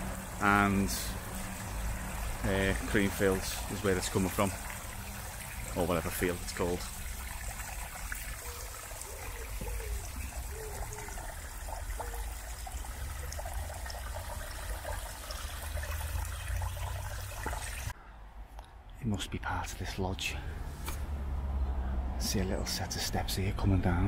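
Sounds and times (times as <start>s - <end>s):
waterfall trickling and splashing: 0.0s - 18.0s.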